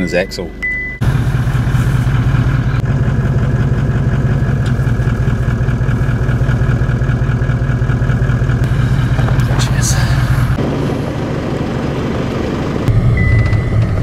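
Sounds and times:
car engine idling: 0.7 - 14.0.

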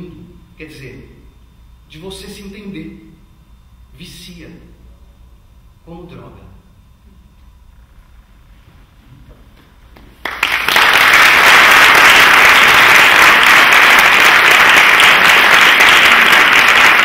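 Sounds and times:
audience applause: 10.2 - 17.0.

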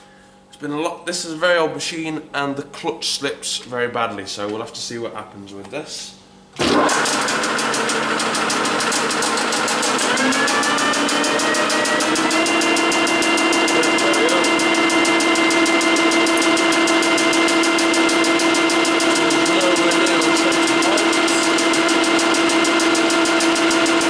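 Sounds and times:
lathe running with whine and rattle: 6.9 - 24.0.

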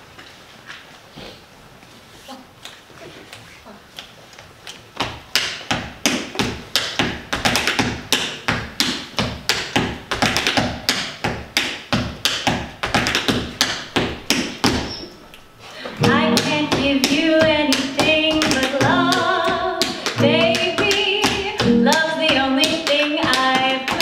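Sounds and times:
tap shoes on stage floor: 3.9 - 15.1, 16.0 - 24.0.

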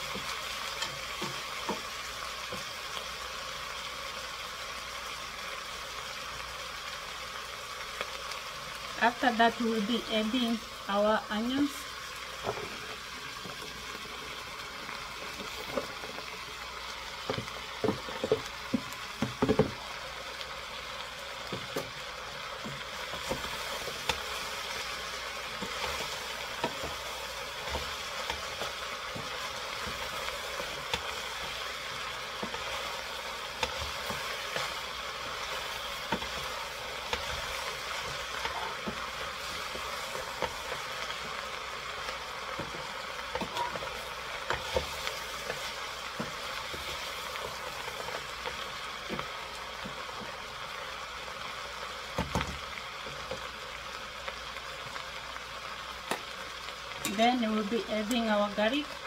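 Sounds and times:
vegetables sizzling in a pot: 0.0 - 59.0
wooden spoon stirring: 22.6 - 50.3.

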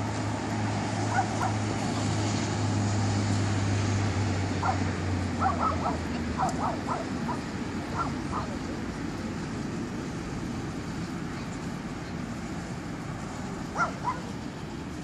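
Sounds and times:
low hum of traffic: 0.0 - 15.0
dog yipping: 1.1 - 1.6, 4.6 - 4.8, 5.4 - 8.6, 13.8 - 14.3.

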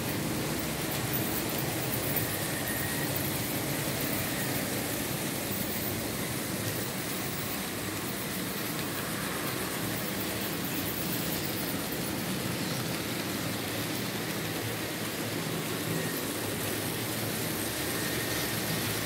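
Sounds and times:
model train wheels rolling on rails: 0.0 - 19.0.

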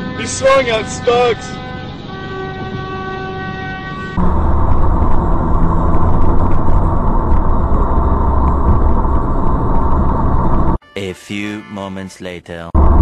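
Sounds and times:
road and engine rumble: 0.0 - 10.8, 12.8 - 13.0
steady hum of even tones: 3.9 - 10.8.

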